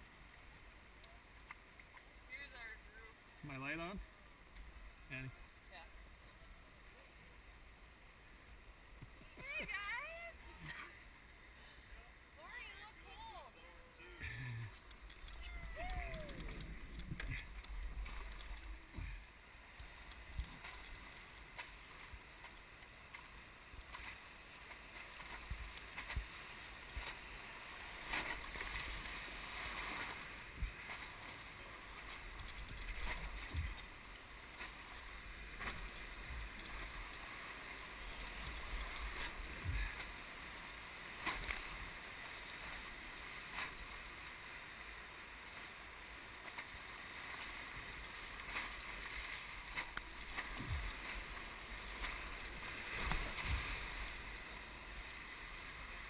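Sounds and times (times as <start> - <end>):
splashes and knocks against raft: 19.8 - 40.2, 41.1 - 42.8, 46.4 - 54.4.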